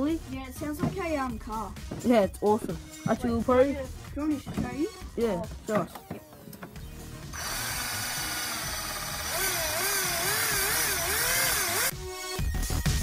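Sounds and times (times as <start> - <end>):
cordless drill motor: 7.3 - 11.9.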